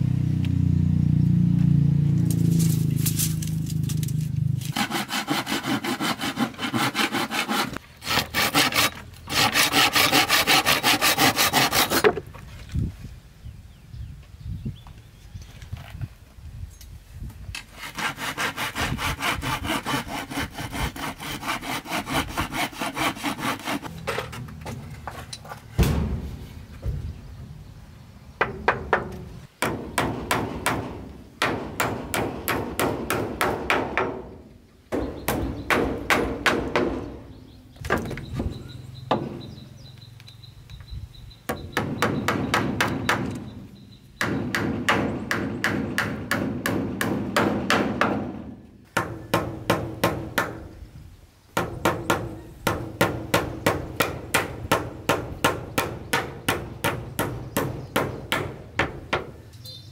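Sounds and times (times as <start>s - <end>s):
hammer striking wood: 28.4s - 34.3s, 34.9s - 37.2s, 41.5s - 43.5s, 44.2s - 48.4s, 49.0s - 50.6s, 51.6s - 59.4s.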